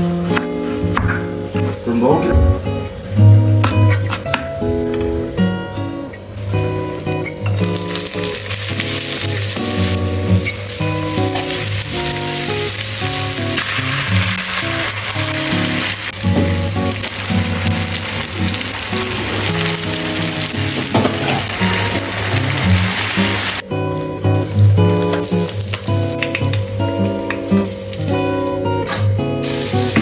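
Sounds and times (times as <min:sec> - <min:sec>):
background music: 0:00.0 - 0:30.0
food sizzling in a pan: 0:06.5 - 0:28.8, 0:29.4 - 0:30.0.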